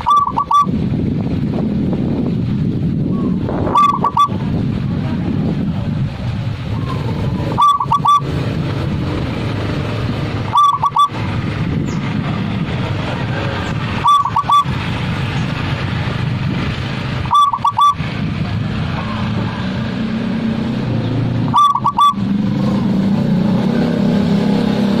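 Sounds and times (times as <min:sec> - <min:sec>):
dove cooing: 0:00.0 - 0:00.7, 0:03.7 - 0:04.4, 0:06.9 - 0:08.3, 0:10.5 - 0:11.1, 0:14.0 - 0:14.7, 0:17.3 - 0:18.0, 0:21.5 - 0:22.2
steady low rumble: 0:00.0 - 0:23.4.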